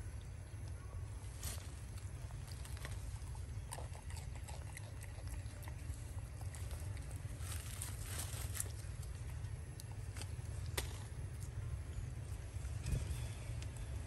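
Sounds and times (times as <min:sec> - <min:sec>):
wind rumble on microphone: 0:12.3 - 0:14.0.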